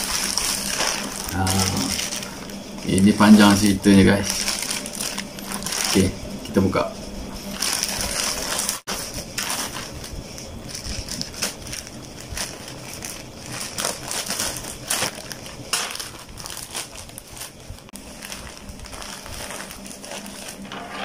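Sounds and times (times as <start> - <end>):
plastic bag tearing and crinkling: 0.0 - 6.2, 7.4 - 21.0.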